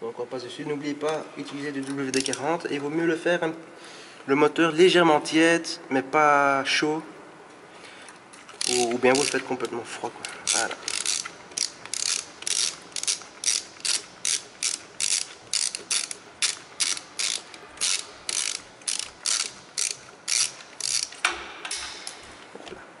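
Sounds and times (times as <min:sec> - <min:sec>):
ratchet wrench clicking: 0:02.1 - 0:02.4, 0:08.6 - 0:09.5, 0:10.2 - 0:22.3.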